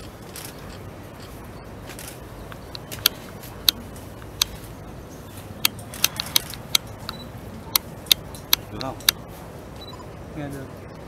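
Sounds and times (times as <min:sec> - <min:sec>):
camera shutters clicking: 0:00.1 - 0:03.8, 0:05.6 - 0:09.2.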